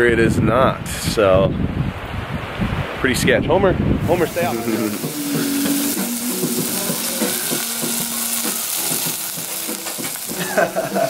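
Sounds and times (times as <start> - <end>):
meat patties sizzling in pan: 4.1 - 11.0.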